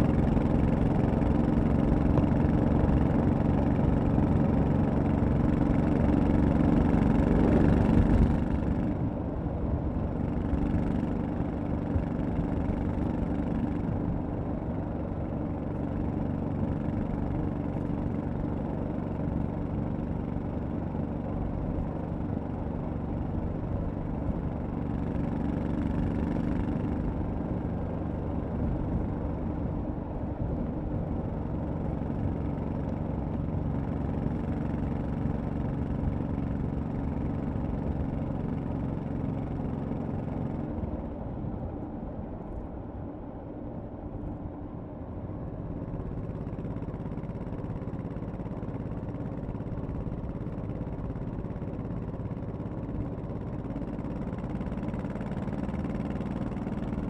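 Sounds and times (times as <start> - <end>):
motorcycle engine droning: 44.6 - 57.0.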